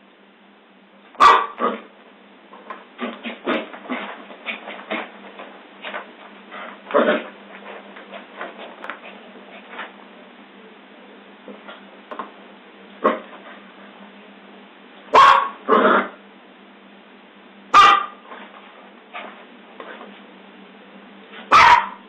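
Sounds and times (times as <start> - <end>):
dog barking: 1.2 - 1.8, 15.1 - 16.0, 17.7 - 18.2, 21.5 - 22.0.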